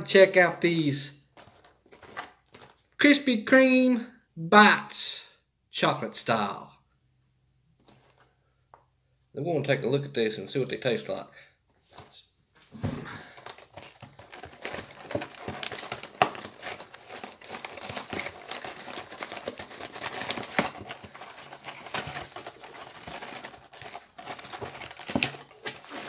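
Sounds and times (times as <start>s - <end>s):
cardboard box being torn open: 13.5s - 26.0s.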